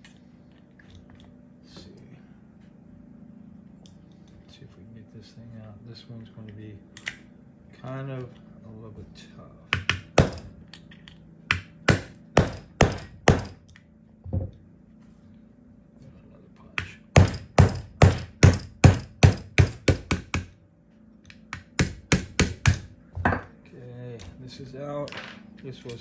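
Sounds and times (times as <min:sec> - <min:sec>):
hammer tapping metal punch: 0:09.7 - 0:10.5, 0:11.5 - 0:13.6, 0:16.8 - 0:20.5, 0:21.3 - 0:23.5.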